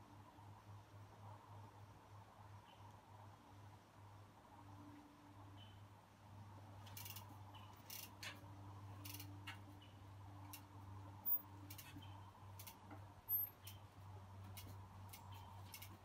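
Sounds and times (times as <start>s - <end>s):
steady low hum: 0.0s - 16.0s
bike freewheel clicking: 6.8s - 9.6s, 10.5s - 13.8s, 14.5s - 16.0s.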